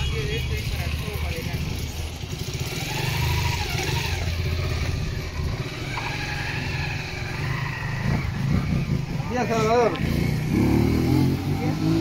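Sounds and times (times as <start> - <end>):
vehicle engine rumbling: 0.0 - 12.0.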